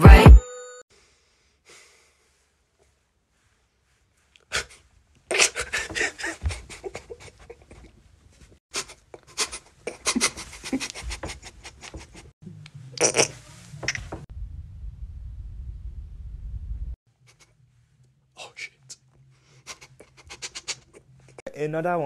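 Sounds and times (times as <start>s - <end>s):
man's stifled laughter: 5.3s - 7.9s, 9.9s - 12.3s.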